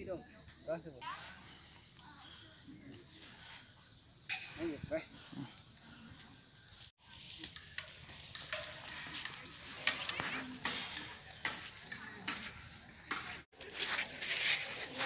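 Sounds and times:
clicks and rustles: 7.2 - 15.0.

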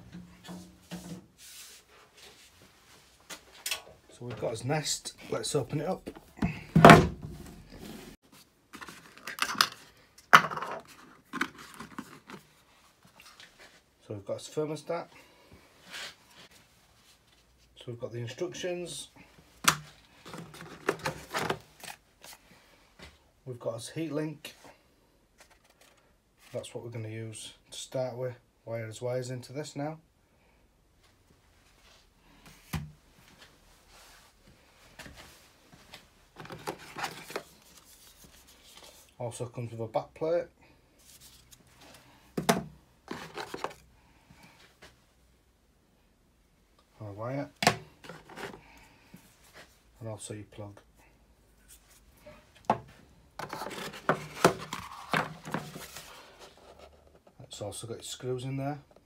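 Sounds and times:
box and packaging rustling: 5.8 - 13.9, 19.6 - 22.4, 25.4 - 26.1, 35.8 - 39.2, 41.0 - 43.9, 47.6 - 48.7, 51.7 - 57.4
cardboard scraping and rustling: 36.4 - 39.0, 43.1 - 43.8, 53.4 - 57.4.

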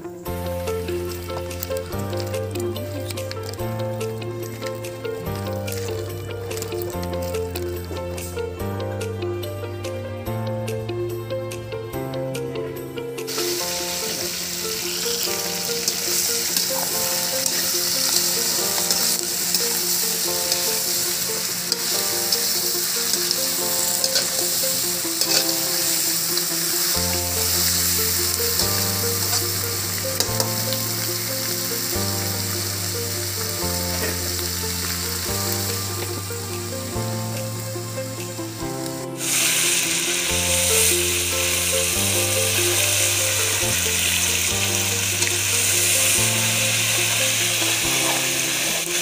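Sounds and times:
food sizzling in a wok: 0.0 - 9.5, 13.3 - 49.0
background music: 0.0 - 49.0
stirring scrapes: 14.1 - 30.8.

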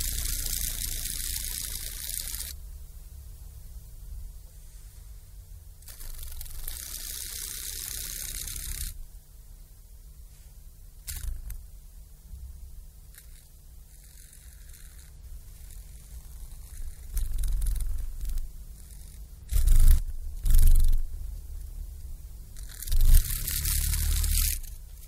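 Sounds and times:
dragonfly wings fluttering: 0.0 - 2.6, 5.8 - 9.0, 11.1 - 11.6, 13.1 - 21.1, 22.6 - 25.0.

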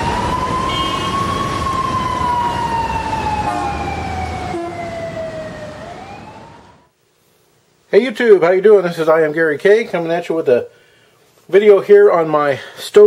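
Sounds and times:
siren wailing: 0.0 - 6.9.

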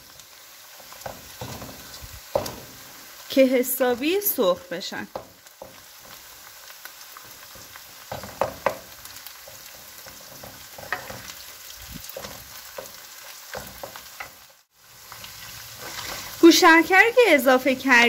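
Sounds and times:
meat sizzling in oil: 0.0 - 18.0
wooden spoon scraping pan: 7.2 - 14.4, 15.8 - 16.4.

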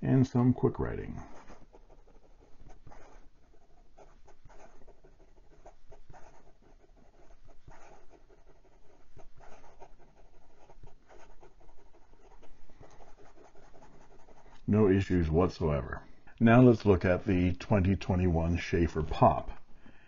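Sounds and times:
pen nib scratching paper: 1.1 - 14.7.

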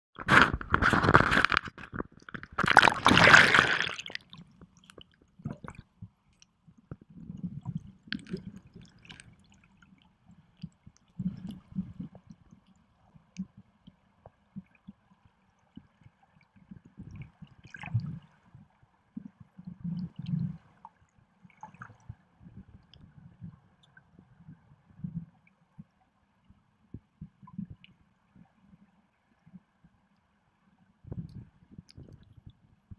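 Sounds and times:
underwater gurgling: 0.2 - 6.2, 6.9 - 25.9
water splashing: 0.3 - 5.8.

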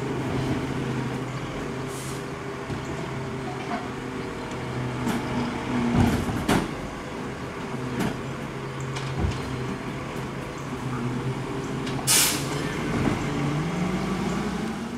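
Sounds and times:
garbage truck diesel engine: 0.0 - 14.9
air hiss: 12.1 - 12.5.

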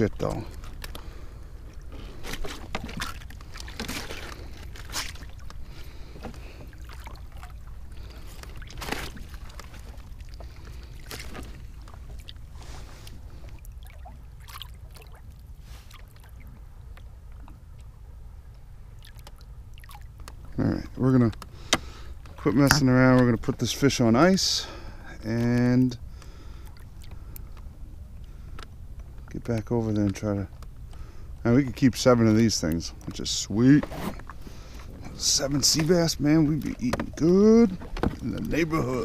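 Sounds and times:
water sloshing against hull: 0.0 - 39.0
knocks and clicks on kayak: 21.3 - 23.3, 36.6 - 38.6.

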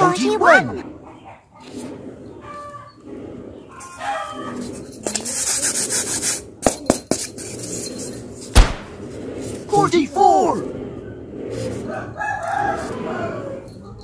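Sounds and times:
styrofoam rubbing and squeaking: 3.8 - 6.4
loud thud: 8.5 - 9.1.

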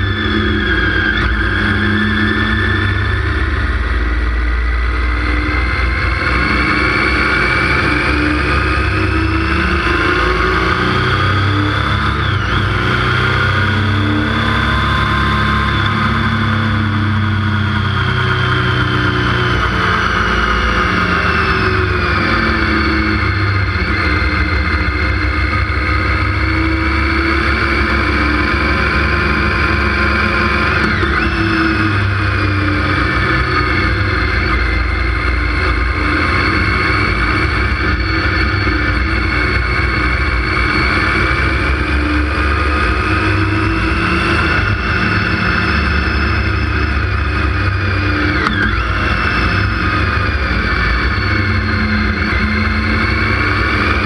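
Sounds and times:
motorcycle engine running: 0.0 - 54.0
wind and road noise: 0.0 - 54.0.

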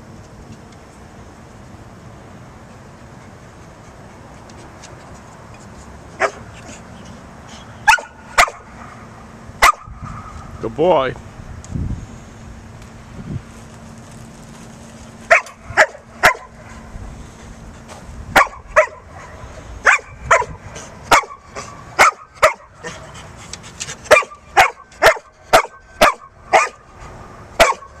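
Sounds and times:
dog barking: 6.2 - 6.4, 7.9 - 8.6, 9.6 - 9.9, 15.3 - 16.5, 18.4 - 22.7, 24.1 - 26.8, 27.6 - 27.9.

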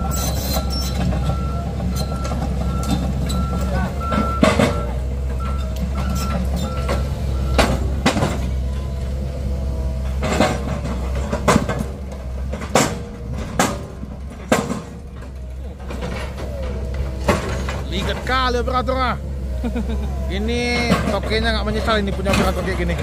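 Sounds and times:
reversing alarm beeping: 0.0 - 7.9
diesel machine running: 0.0 - 23.0.

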